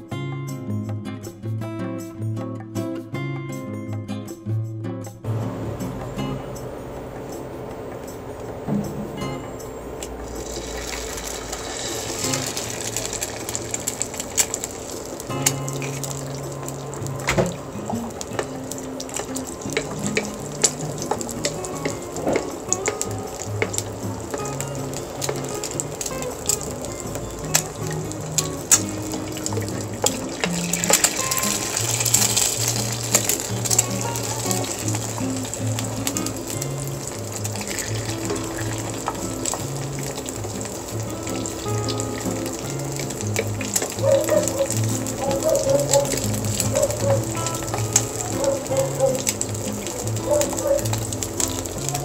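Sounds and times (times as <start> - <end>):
background music: 0.0 - 52.0
egg sizzling in oil: 9.9 - 52.0.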